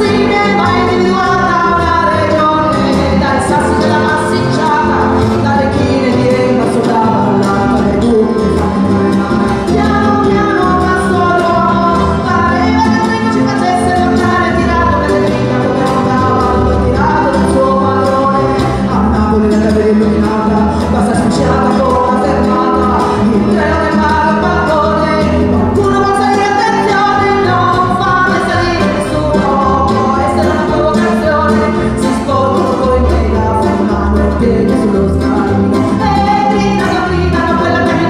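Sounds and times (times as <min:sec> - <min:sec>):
classical guitar: 0:00.0 - 0:38.0
plucked double bass: 0:00.0 - 0:38.0
woman singing: 0:00.0 - 0:38.0.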